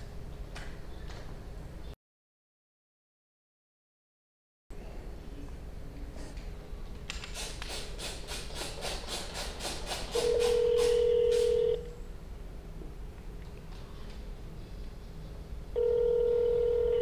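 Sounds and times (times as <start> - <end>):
steady phone tone: 10.2 - 11.9, 15.8 - 17.0.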